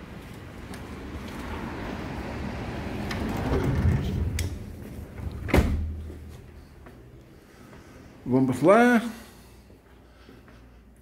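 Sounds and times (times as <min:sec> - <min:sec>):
outside noise: 0:00.0 - 0:08.5
sliding glass door rolling: 0:01.0 - 0:05.6.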